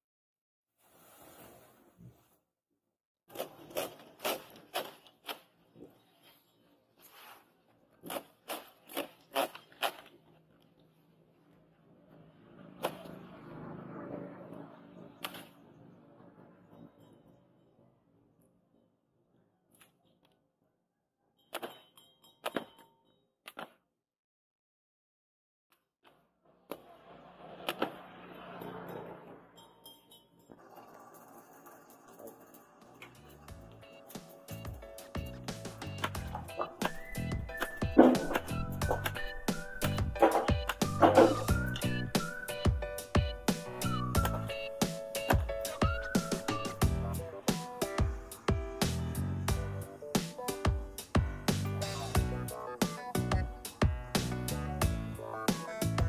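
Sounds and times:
blade chopping plant stalk: 8.0 - 10.2.

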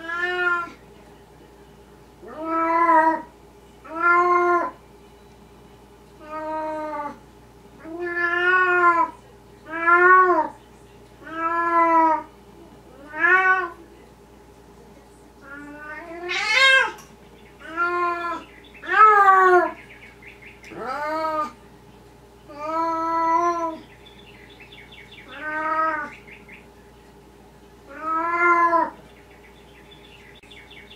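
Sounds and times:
cat meowing: 0.0 - 0.8, 2.3 - 4.8, 6.2 - 7.2, 7.8 - 10.5, 11.2 - 12.3, 13.0 - 13.8, 15.4 - 17.0, 17.6 - 19.8, 20.7 - 21.6, 22.5 - 23.8, 25.2 - 26.1, 27.9 - 29.0.

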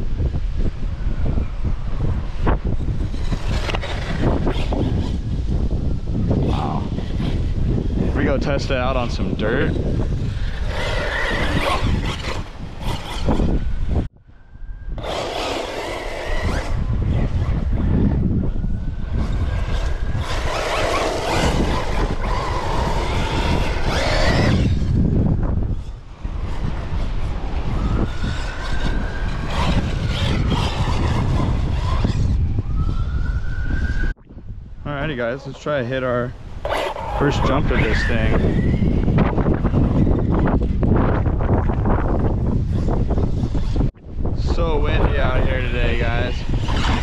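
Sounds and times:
wind buffeting microphone: 0.0 - 47.0
rc buggy running on dirt: 1.3 - 14.1, 14.8 - 33.0, 36.2 - 47.0
electric motor whining: 14.8 - 34.0.

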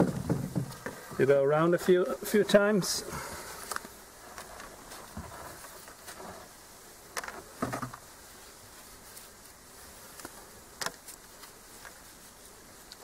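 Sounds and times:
cord rubbing on wood: 3.3 - 6.6, 7.2 - 13.0.

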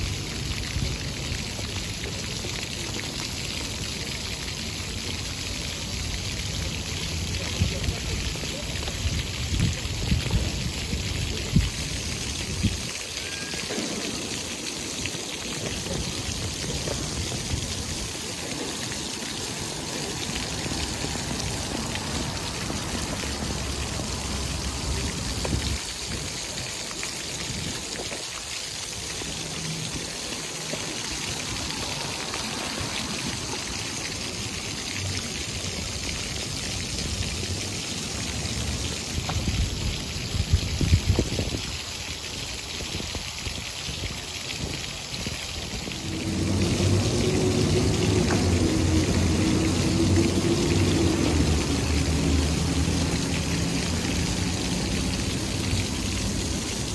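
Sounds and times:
water jets splashing into pool: 0.0 - 56.9.

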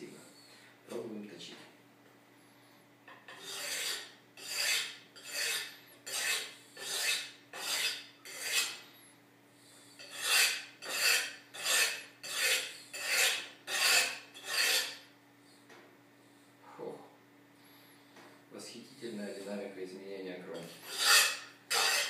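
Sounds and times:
knife scraping on ceramic tile: 3.1 - 8.8, 10.0 - 15.0, 20.6 - 22.0.

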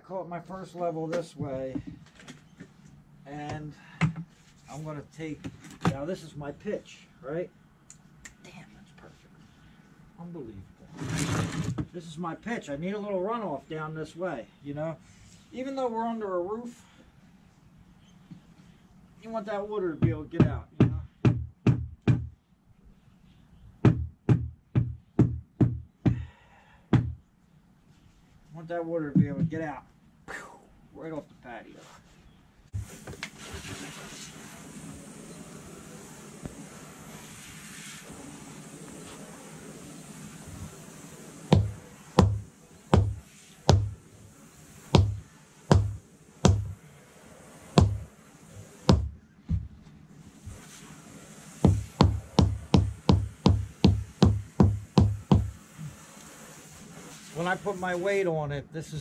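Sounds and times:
rubber mallet thudding on stone: 41.5 - 44.0, 45.0 - 46.7, 47.8 - 48.0, 48.9 - 49.7, 51.6 - 55.5.

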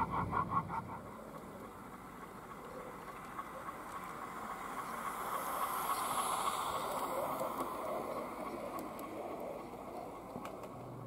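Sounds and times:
model train wheels on rails: 0.0 - 11.0.

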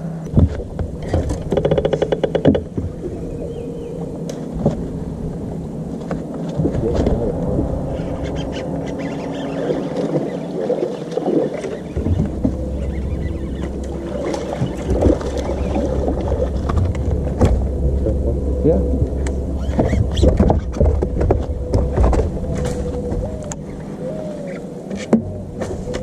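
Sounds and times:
deep low hum: 0.0 - 26.0
electric trolling motor humming: 0.0 - 26.0.

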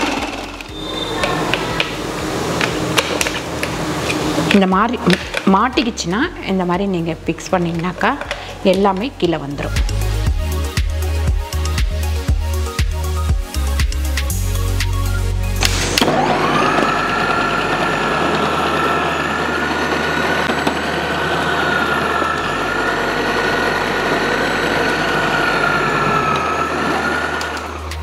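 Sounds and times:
food processor motor whining: 0.0 - 6.0, 15.6 - 28.0.

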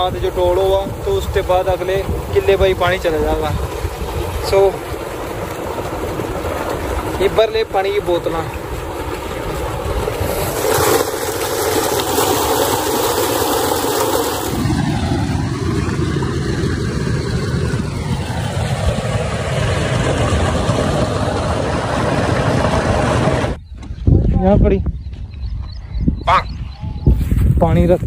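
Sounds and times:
water gushing into a tank: 0.0 - 15.9.

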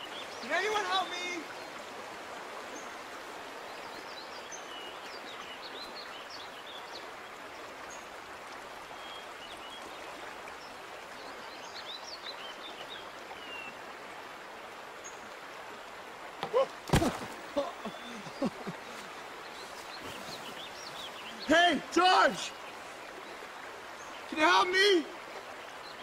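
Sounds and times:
rocky stream rushing: 0.0 - 26.0
small birds chirping: 16.4 - 26.0.

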